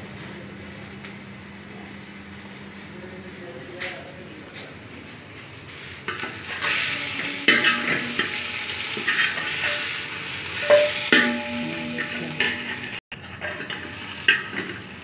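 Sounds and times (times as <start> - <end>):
hot oil sizzling: 0.0 - 15.0
utensil scraping metal pot: 6.0 - 15.0.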